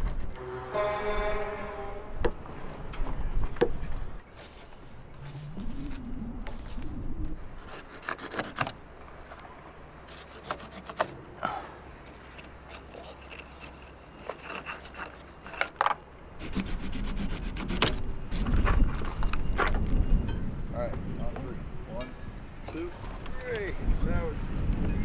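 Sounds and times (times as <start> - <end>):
low rumble: 5.1 - 7.6
hand tool scraping cord: 7.6 - 9.4, 10.1 - 11.2, 12.0 - 18.0.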